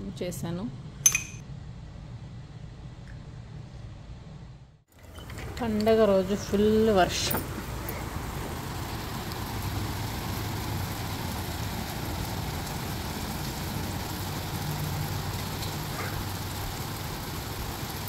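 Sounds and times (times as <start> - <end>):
heavy rain on pavement: 7.0 - 18.0.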